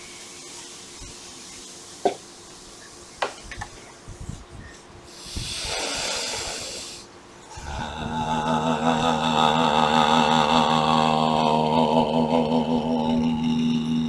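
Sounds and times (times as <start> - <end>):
deep breath drawn in: 5.1 - 11.7.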